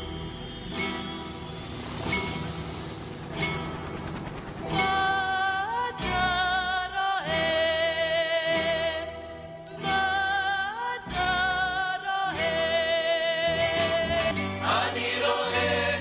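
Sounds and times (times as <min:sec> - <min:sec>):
woman singing slow song: 0:04.8 - 0:14.4.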